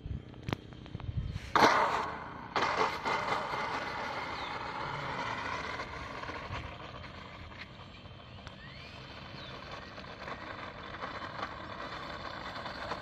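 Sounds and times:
model airplane motor whining: 3.6 - 13.0.

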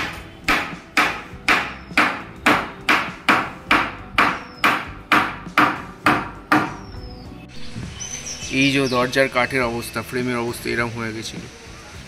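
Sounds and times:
hammer striking wood: 0.0 - 6.8.

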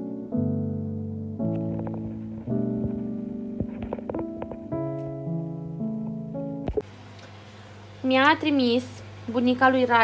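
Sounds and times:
music with held chords: 0.0 - 7.0.

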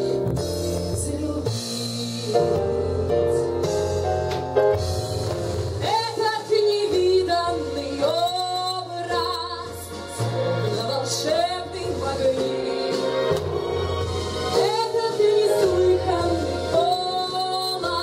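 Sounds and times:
backing music with bass: 0.0 - 18.0
woman singing: 0.6 - 3.7, 5.8 - 13.4, 14.6 - 18.0.

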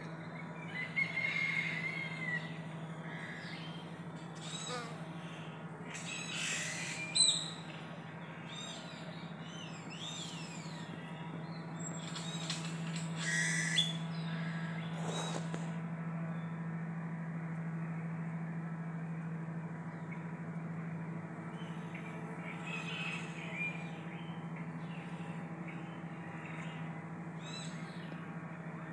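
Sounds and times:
birds chirping and whistling: 0.3 - 15.5, 21.5 - 28.2
bees humming: 1.7 - 7.7.

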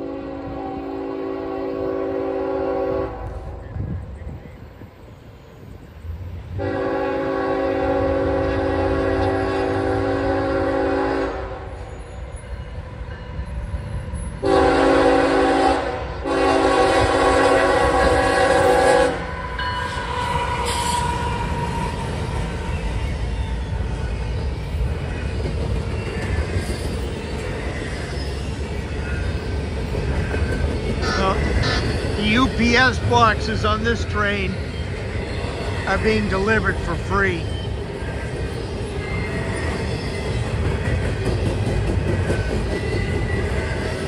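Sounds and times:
train horn blasts: 0.0 - 3.5, 6.6 - 11.8, 14.4 - 19.3, 31.0 - 32.0
train cars clacking over rails: 19.7 - 44.0.

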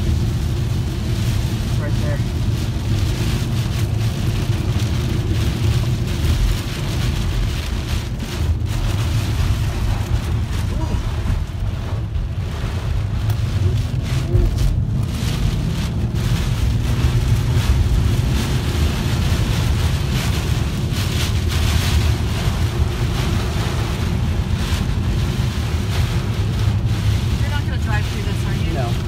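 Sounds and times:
heavy rain battering a car: 0.0 - 29.0
low rumble of storm wind: 0.0 - 29.0.

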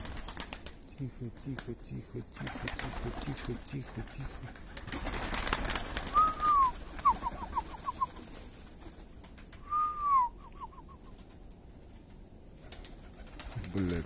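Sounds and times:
high whistled call: 6.1 - 8.2, 9.6 - 11.1.

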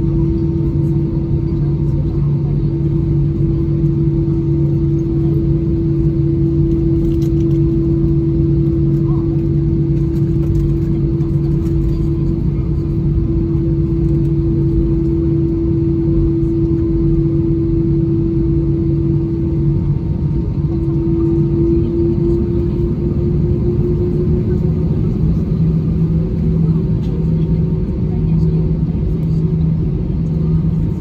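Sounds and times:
airliner cabin drone: 0.0 - 31.0.

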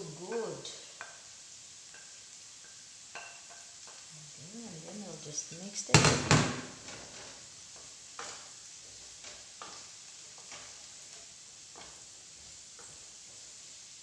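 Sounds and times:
vegetables sizzling in butter: 0.0 - 14.0
wooden spoon scraping a pan: 4.8 - 14.0.

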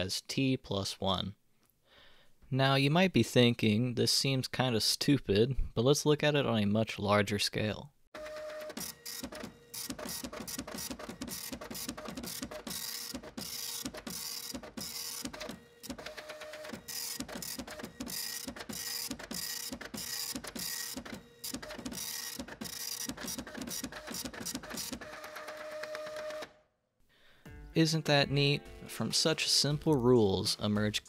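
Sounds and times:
rapid mechanical clicking: 8.5 - 26.4.

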